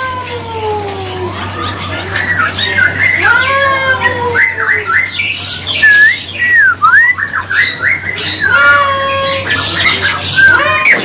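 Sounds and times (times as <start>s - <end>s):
harsh bird chatter: 0.0s - 11.0s
songbird whistles and chirps: 4.3s - 8.7s.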